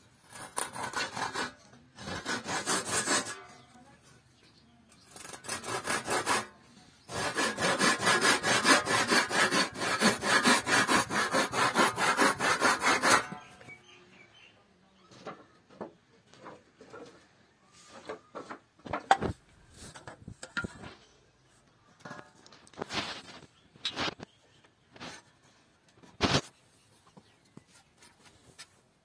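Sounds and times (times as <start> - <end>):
hand saw cutting wood: 0.2 - 3.6, 5.1 - 13.5.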